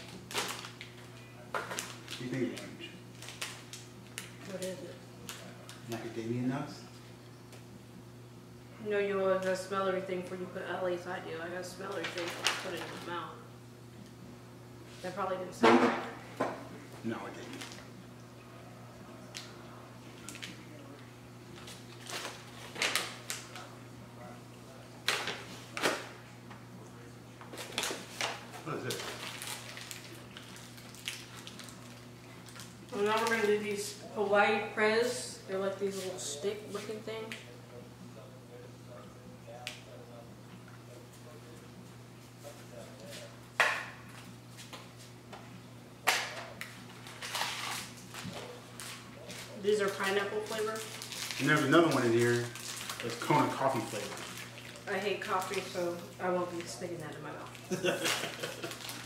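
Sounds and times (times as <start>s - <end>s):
plastic packets and paper crinkling: 0.0s - 6.1s, 11.9s - 13.1s, 21.5s - 23.7s, 27.5s - 33.6s, 46.6s - 56.8s, 57.4s - 59.0s.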